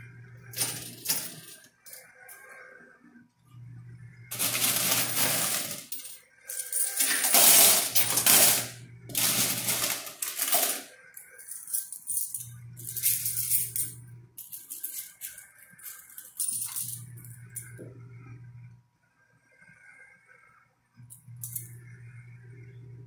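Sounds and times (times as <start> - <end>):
steady low hum: 0.0 - 23.0
coins clattering in a machine: 0.5 - 2.4, 4.3 - 17.7, 21.1 - 21.7.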